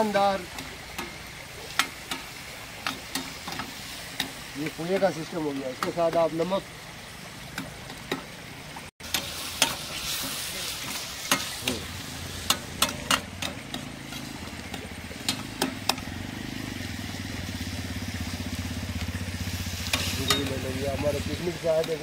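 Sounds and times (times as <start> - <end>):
food sizzling in a pan: 0.0 - 7.2, 9.0 - 22.0
low engine hum: 11.7 - 21.6.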